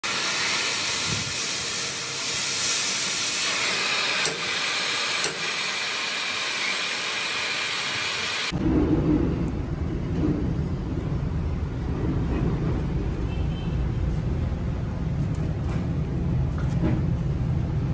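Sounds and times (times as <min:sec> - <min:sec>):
welding torch flame hissing: 0:00.0 - 0:08.6
low rumble: 0:08.6 - 0:13.3.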